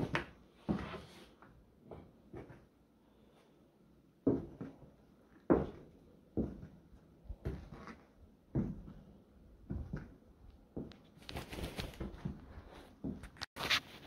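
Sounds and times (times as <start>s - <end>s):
heavy footsteps on floor: 4.3s - 4.9s, 5.5s - 9.0s, 9.6s - 10.1s.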